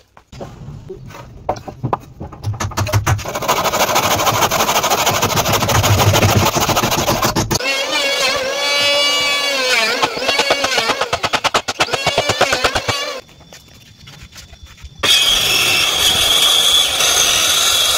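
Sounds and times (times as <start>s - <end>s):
saw cutting wood: 3.2s - 13.2s, 15.0s - 17.9s.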